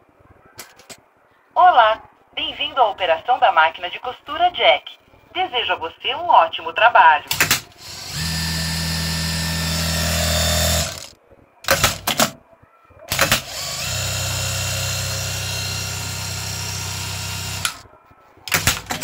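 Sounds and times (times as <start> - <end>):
sewing machine running: 7.4 - 11.1, 13.1 - 17.8.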